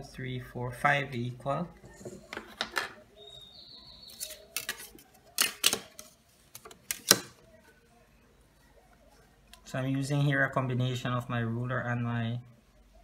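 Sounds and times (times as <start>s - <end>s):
plastic set squares clicking on paper: 4.2s - 7.4s.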